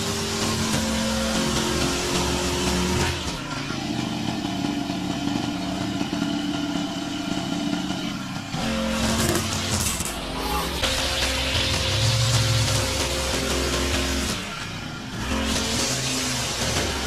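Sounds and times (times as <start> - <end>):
lawn mower engine running: 0.0 - 17.0.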